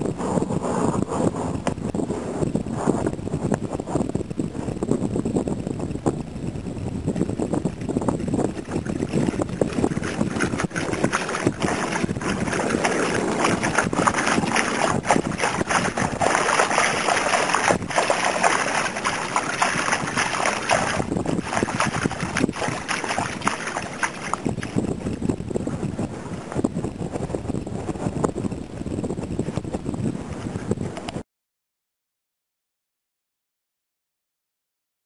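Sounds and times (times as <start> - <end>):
wind rumble on microphone: 0.0 - 31.2
splashing through shallow water: 8.4 - 24.9.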